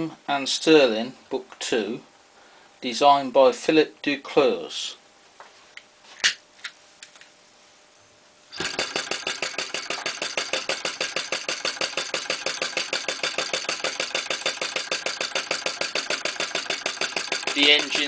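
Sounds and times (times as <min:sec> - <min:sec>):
model engine running: 0:08.6 - 0:18.0.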